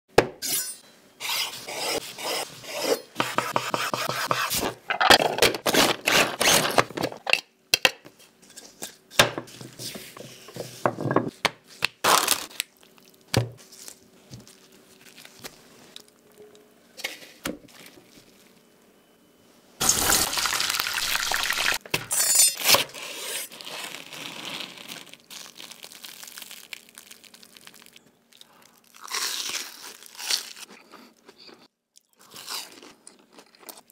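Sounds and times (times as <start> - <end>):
knife scraping bread: 1.2 - 4.8
beaten egg pouring: 19.8 - 21.8.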